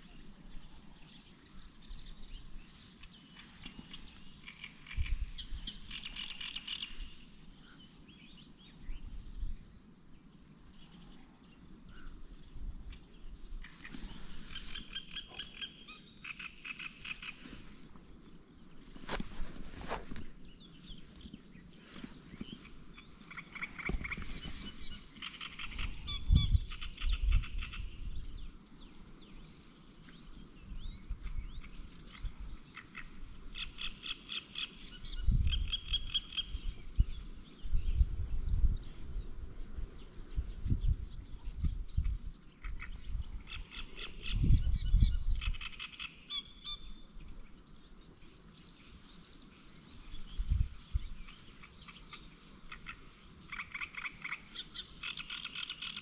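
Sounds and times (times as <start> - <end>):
frogs croaking: 3.8 - 7.1, 14.6 - 17.5, 51.3 - 56.0.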